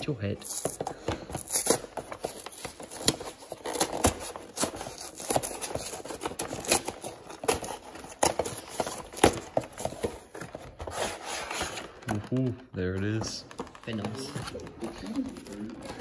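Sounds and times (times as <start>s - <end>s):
cardboard box tearing: 0.4s - 12.1s.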